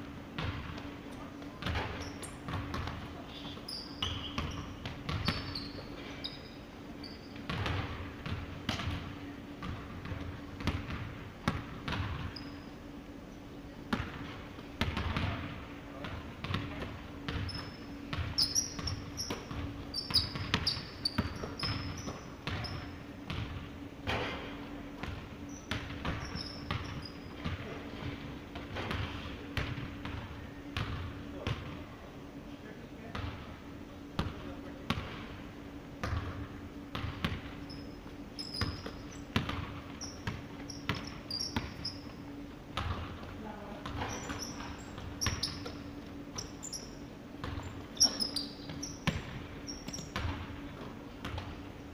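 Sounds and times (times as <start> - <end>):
sneakers squeaking on wood: 1.6 - 7.6, 12.1 - 12.7, 17.2 - 23.0, 25.4 - 27.6, 37.5 - 42.4, 43.9 - 51.4
basketball bouncing on hardwood: 4.4 - 5.5, 25.0 - 31.6, 38.5 - 42.0, 42.8 - 46.6, 47.4 - 51.6.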